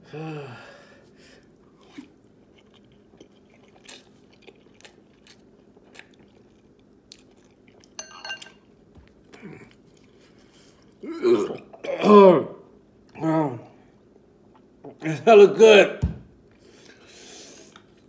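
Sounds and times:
person chewing and slurping noodles: 1.4 - 8.0.

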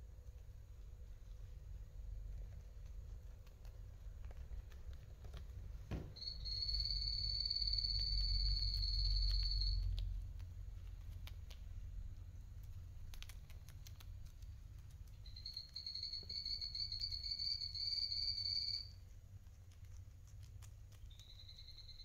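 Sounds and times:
guinea pig chewing lettuce: 0.0 - 22.0
high whistle-like tone: 6.2 - 9.9, 15.3 - 19.0, 21.2 - 22.0.

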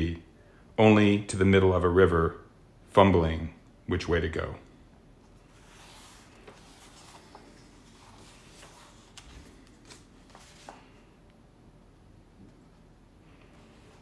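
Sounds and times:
book pages turning: 5.4 - 11.2.

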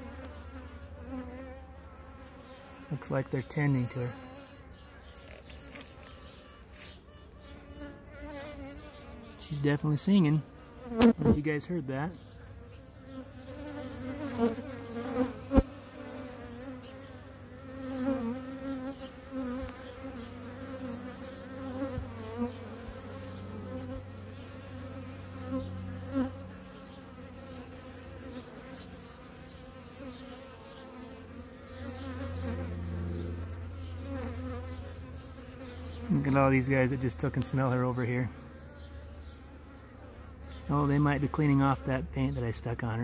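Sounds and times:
honeybees buzzing: 0.0 - 43.0.

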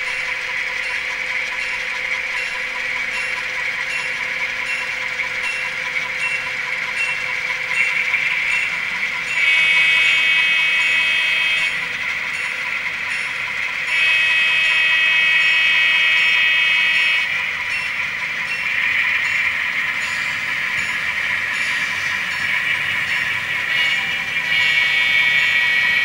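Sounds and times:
diesel engine running: 0.0 - 26.0
train horn blasts: 9.4 - 11.8, 13.8 - 17.4, 23.6 - 26.0.

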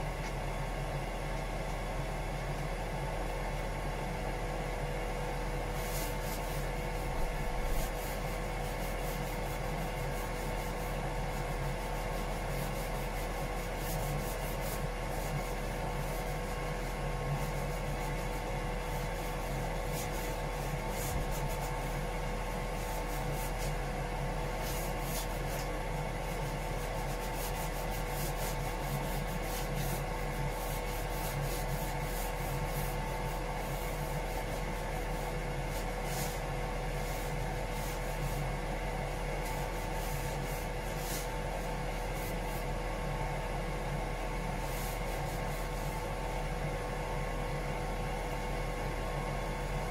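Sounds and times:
machinery hum: 0.0 - 49.9
hand sanding scratchy strokes: 5.7 - 42.8, 44.5 - 46.2.

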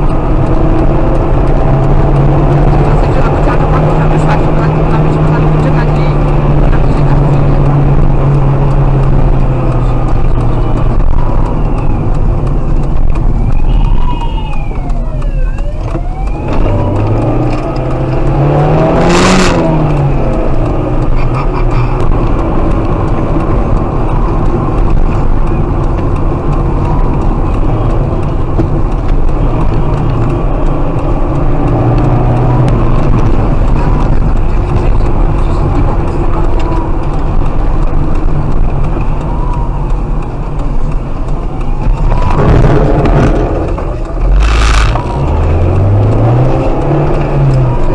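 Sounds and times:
car engine and road noise: 0.0 - 47.9
siren wailing: 10.9 - 12.3, 13.2 - 19.4, 39.0 - 40.4
loud rush of noise: 41.8 - 47.8.

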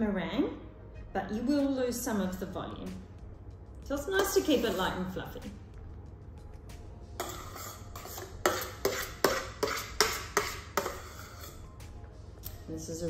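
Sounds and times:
spoon scraping a metal bowl: 4.1 - 5.1, 7.2 - 11.8.

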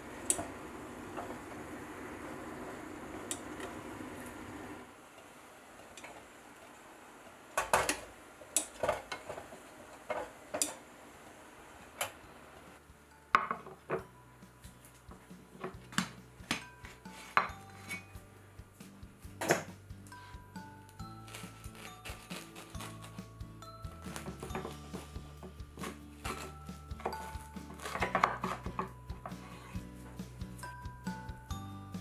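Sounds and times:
metal clanks and knocks: 13.4 - 14.1.

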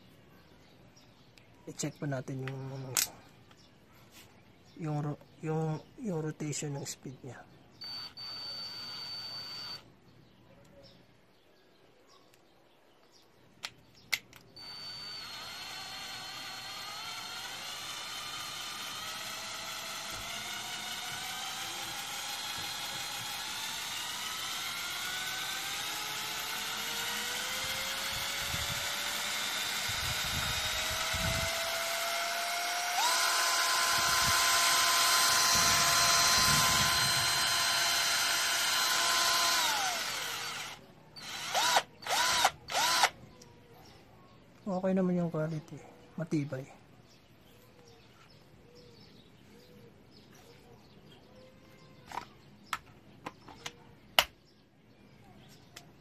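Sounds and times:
cordless drill motor whine: 7.8 - 9.9, 14.6 - 43.4.

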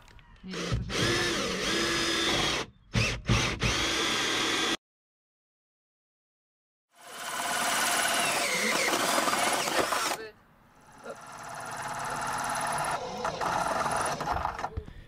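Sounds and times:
cordless drill with hole saw: 0.5 - 4.8, 7.0 - 10.2, 11.2 - 14.7.

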